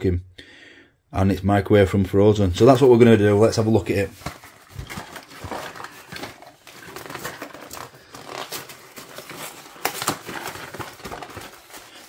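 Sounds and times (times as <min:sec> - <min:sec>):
packaging crinkling and rustling: 0:02.7 - 0:12.0.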